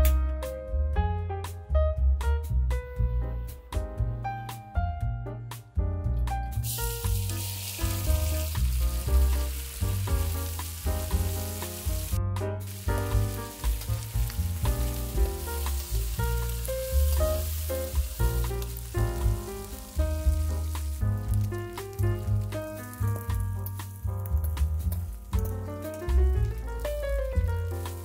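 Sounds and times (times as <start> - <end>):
background music: 0.0 - 28.0
meat sizzling in oil: 6.6 - 28.0.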